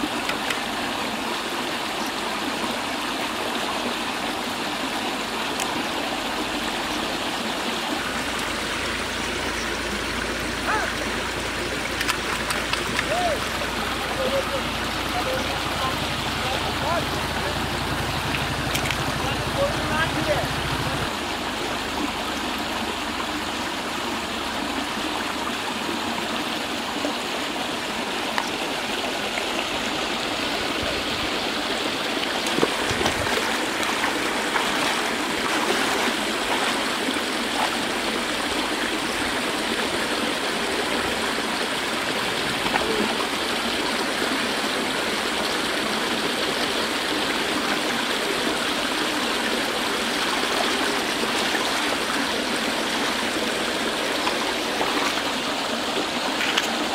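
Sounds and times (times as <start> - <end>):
water rushing from pipes: 0.0 - 56.9
splashes of person wading: 9.9 - 19.5, 32.3 - 38.0, 42.2 - 43.4, 50.1 - 56.9.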